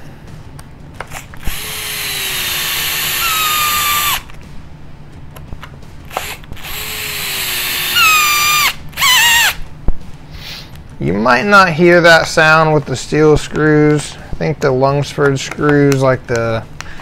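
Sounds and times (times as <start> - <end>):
drill driving screws into plastic: 1.1 - 4.3, 6.1 - 9.6.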